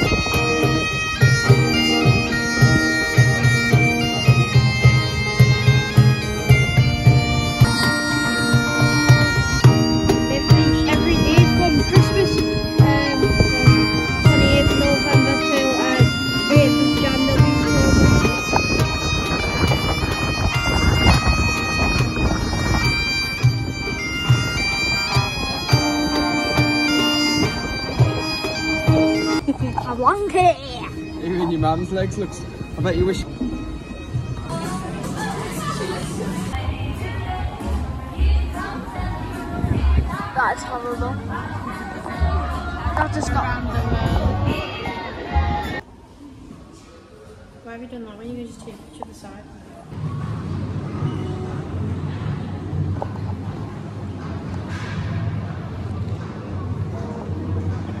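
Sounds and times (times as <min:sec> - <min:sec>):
bagpipes playing a melody: 0:00.0 - 0:34.6
low beat: 0:00.0 - 0:34.7.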